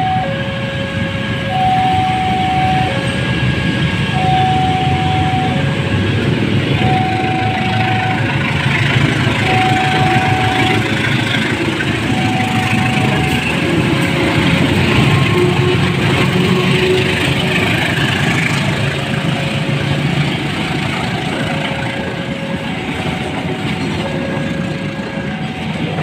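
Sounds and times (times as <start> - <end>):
two-tone crossing alarm: 0.0 - 6.0, 6.7 - 18.6, 19.2 - 26.0
diesel locomotive rumble: 0.0 - 26.0
rail noise: 0.0 - 26.0.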